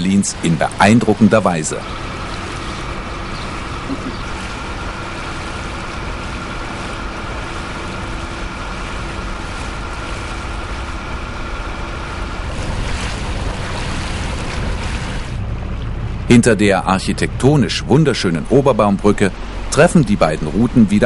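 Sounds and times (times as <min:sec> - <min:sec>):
wind buffeting microphone: 0:00.0 - 0:16.2
boat engine hum: 0:00.0 - 0:21.0
water rushing along hull: 0:00.0 - 0:21.0.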